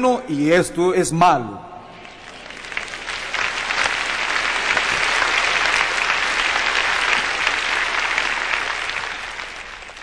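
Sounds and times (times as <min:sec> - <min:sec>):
crowd applauding: 0:01.8 - 0:10.0.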